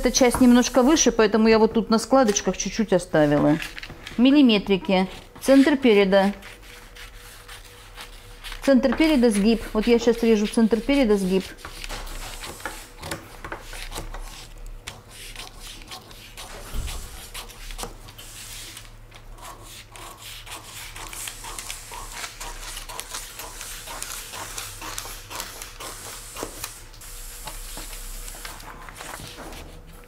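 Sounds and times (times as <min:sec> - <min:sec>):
paper rustling: 0:03.2 - 0:09.7, 0:27.5 - 0:30.0
scissors snipping paper: 0:11.2 - 0:26.8.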